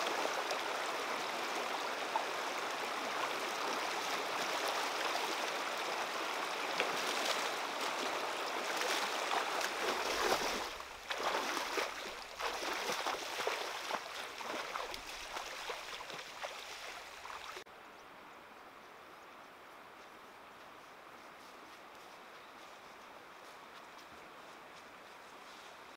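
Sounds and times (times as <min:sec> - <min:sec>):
shallow stony river rushing: 0:00.0 - 0:17.6
splashing steps wading through water: 0:00.0 - 0:17.6.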